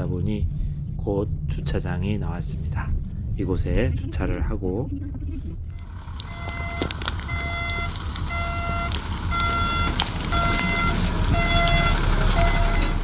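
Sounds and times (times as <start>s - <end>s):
engine and road rumble: 0.0s - 13.0s
car reversing warning beeps: 5.0s - 13.0s.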